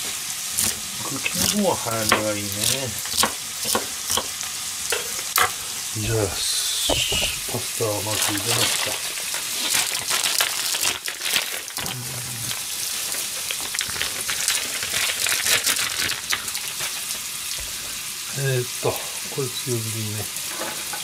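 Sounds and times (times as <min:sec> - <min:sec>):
sharp pops of frying: 0:00.0 - 0:07.6, 0:13.0 - 0:18.2
meat sizzling in a frying pan: 0:00.0 - 0:21.0.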